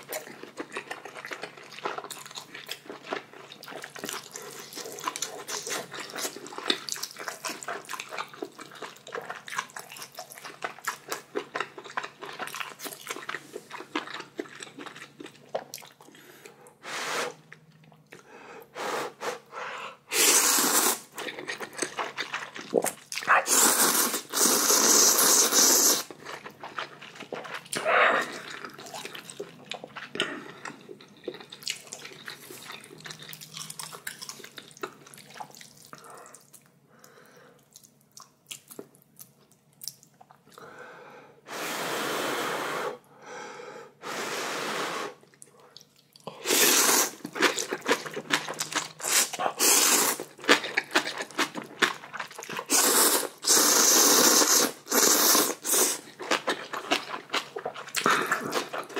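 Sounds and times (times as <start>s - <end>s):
person chewing: 0.0s - 16.6s, 20.1s - 40.7s, 45.2s - 58.9s
person slurping noodles: 20.1s - 21.1s, 22.8s - 26.1s, 44.0s - 45.2s, 46.3s - 47.6s, 49.0s - 50.3s, 52.6s - 56.1s.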